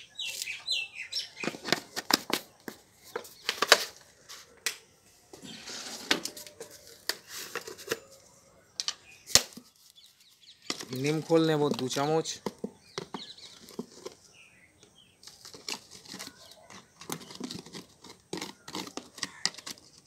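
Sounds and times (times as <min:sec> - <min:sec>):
rasping rustling scrape: 0:05.4 - 0:08.2, 0:15.2 - 0:20.0.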